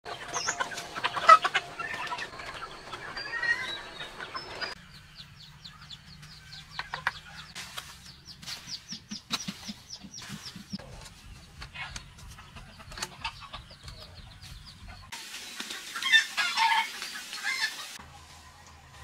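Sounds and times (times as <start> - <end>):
chickens clucking: 0.0 - 18.1
chickens pecking grain: 0.1 - 4.8.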